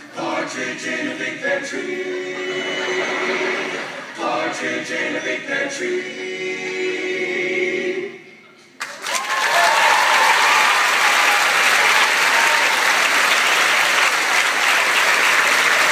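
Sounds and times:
audience applause: 0:08.8 - 0:15.9
audience shouts and whoops: 0:09.0 - 0:13.4.

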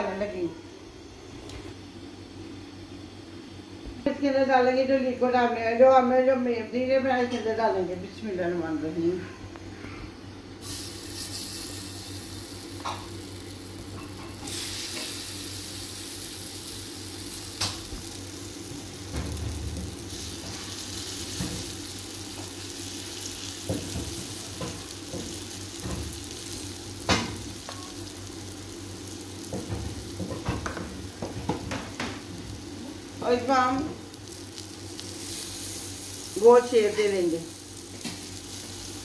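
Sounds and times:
batter sizzling in oil: 0:10.6 - 0:39.0.

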